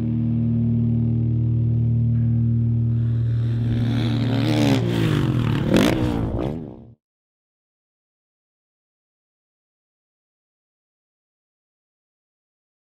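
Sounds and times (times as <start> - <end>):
steady low drone: 0.0 - 7.0
dirt bike engine revving: 2.8 - 7.0.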